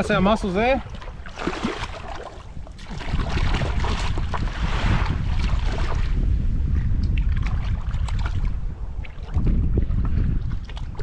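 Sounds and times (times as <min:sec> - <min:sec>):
water sloshing: 0:00.0 - 0:06.2
wind rumbling on microphone: 0:00.0 - 0:11.0.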